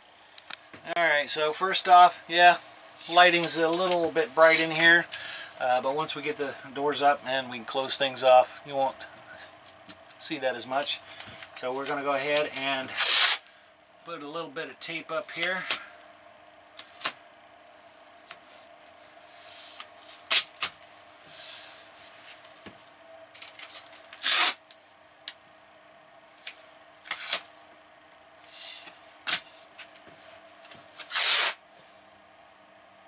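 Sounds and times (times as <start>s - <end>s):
tape ripping off a roll: 12.9s - 13.5s, 19.8s - 20.8s, 23.4s - 24.7s, 26.4s - 27.6s, 28.8s - 29.6s, 30.9s - 31.6s.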